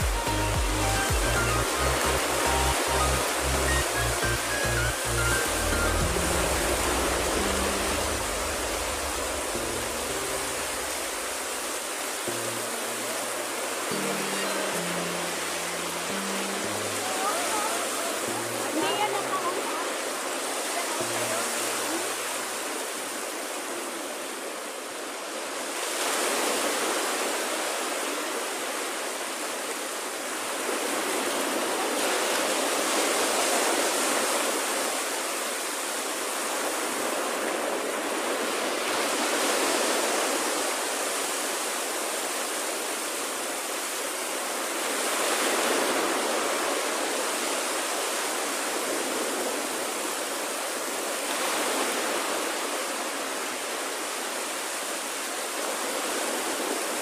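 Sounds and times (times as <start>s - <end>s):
small waves breaking on beach: 0.0s - 57.0s.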